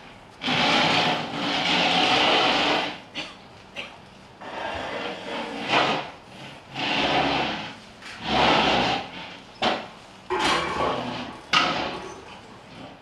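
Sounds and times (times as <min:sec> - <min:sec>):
rhythmic rasping scrapes: 0:00.4 - 0:03.0, 0:04.4 - 0:12.3.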